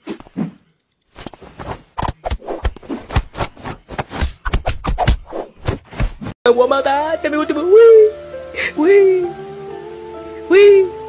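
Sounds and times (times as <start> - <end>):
scratchy rustling and clicking: 0.0 - 6.4.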